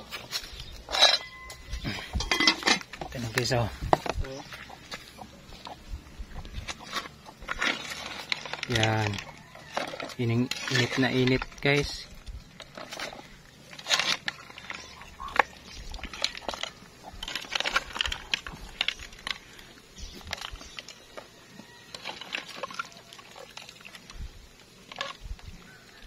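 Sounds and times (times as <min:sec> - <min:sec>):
metal ladle scraping in pot: 0:00.9 - 0:02.9, 0:06.7 - 0:12.0.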